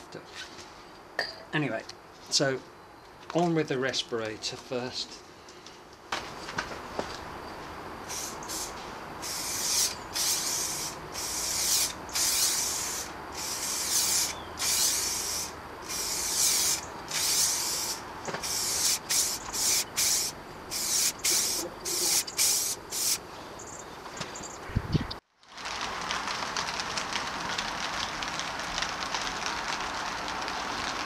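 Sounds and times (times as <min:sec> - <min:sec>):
spray can hissing: 0:08.0 - 0:23.2.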